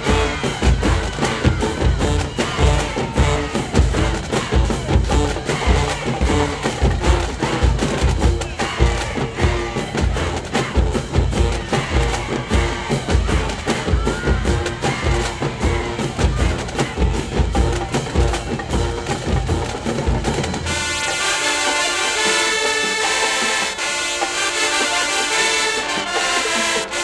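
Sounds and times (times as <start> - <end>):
marching band playing: 0.0 - 27.0
sustained brass chords: 20.6 - 27.0.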